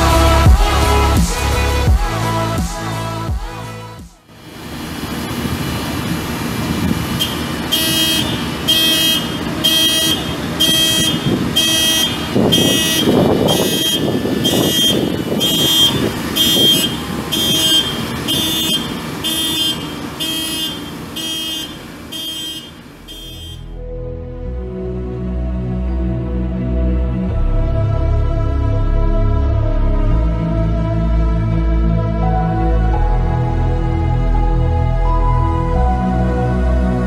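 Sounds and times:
engine rumble: 0:00.0 - 0:37.0
buzzy warning beeps: 0:07.2 - 0:23.7.

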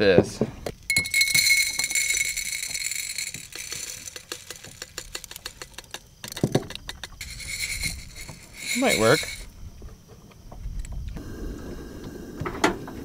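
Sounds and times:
coffee beans rattling in ceramic roaster: 0:00.8 - 0:09.5
ringing clinks: 0:00.9 - 0:05.7, 0:07.2 - 0:09.5.

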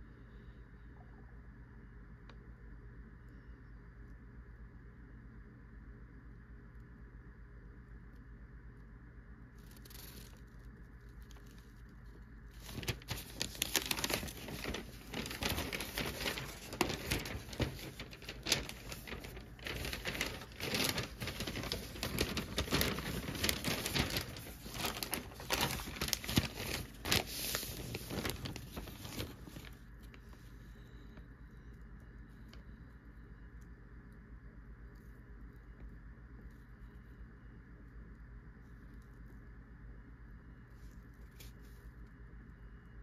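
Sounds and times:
newspaper pages rustling: 0:09.6 - 0:10.6, 0:11.2 - 0:31.0.

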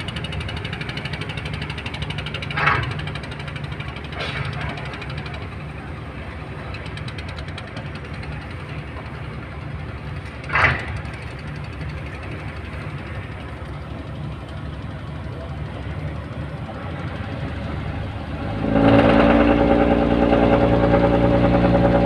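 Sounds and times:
boat engine thudding: 0:00.0 - 0:22.0.

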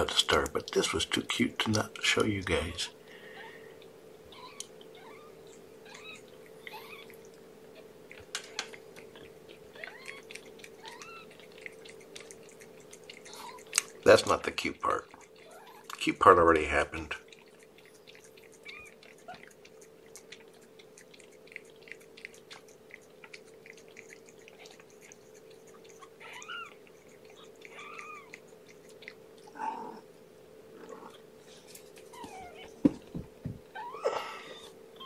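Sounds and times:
steady low hum: 0:00.0 - 0:35.0
kitten mewing: 0:04.3 - 0:07.2, 0:07.8 - 0:14.0, 0:18.4 - 0:22.7, 0:23.6 - 0:30.1, 0:33.7 - 0:35.0
cat licking with wet clicks: 0:04.6 - 0:29.6.

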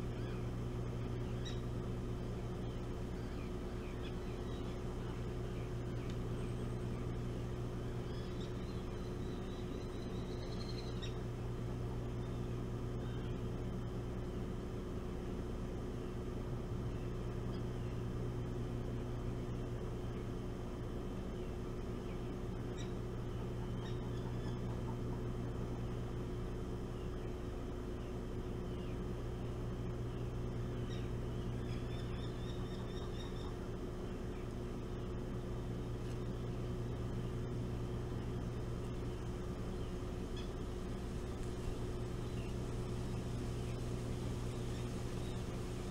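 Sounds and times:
faint bird chirps: 0:00.0 - 0:13.6, 0:16.8 - 0:18.1, 0:21.3 - 0:25.6, 0:26.9 - 0:29.5, 0:30.1 - 0:45.9
low mechanical drone: 0:00.0 - 0:45.9
steady low hum: 0:00.0 - 0:45.9
faint high chirps: 0:08.0 - 0:11.2.

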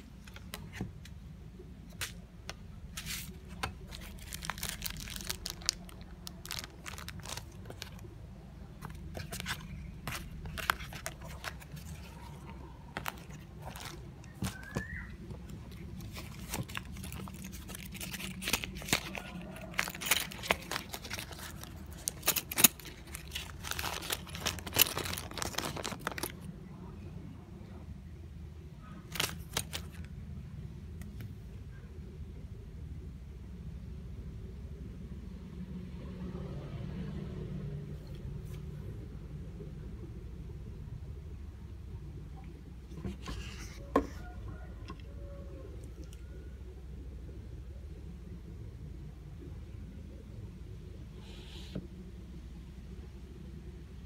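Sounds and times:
packaging crinkling and rustling: 0:02.9 - 0:26.5, 0:29.0 - 0:30.1, 0:42.9 - 0:45.0.

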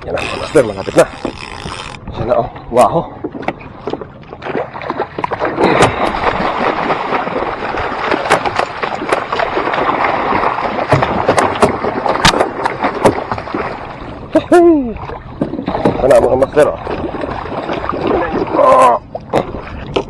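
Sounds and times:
fish splashing in water: 0:04.4 - 0:14.0.

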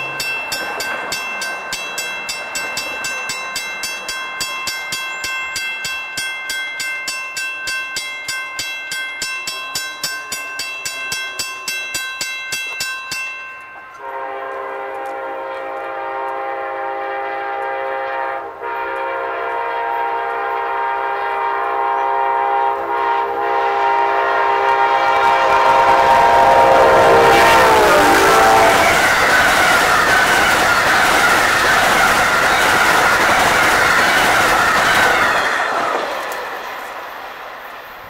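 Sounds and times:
train rushing past: 0:00.0 - 0:08.0, 0:14.0 - 0:38.0
locomotive air horn blasts: 0:14.0 - 0:33.2.

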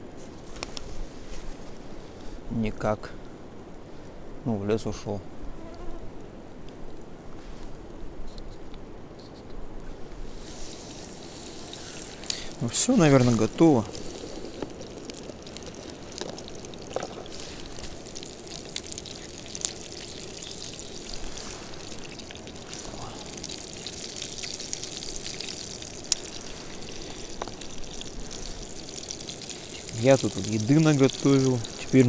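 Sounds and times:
fish frying in oil: 0:10.3 - 0:32.0
pops and crackles of oil: 0:10.5 - 0:32.0.

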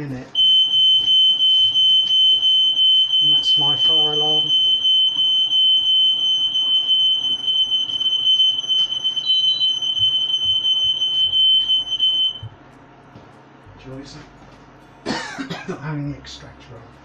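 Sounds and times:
smoke alarm tone: 0:00.4 - 0:12.5.

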